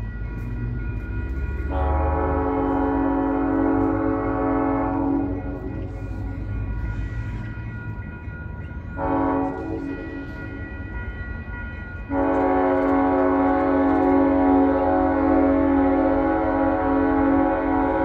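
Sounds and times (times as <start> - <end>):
train rumble: 0.0 - 18.0
locomotive air horn blasts: 1.7 - 5.7, 9.0 - 10.1, 12.1 - 18.0.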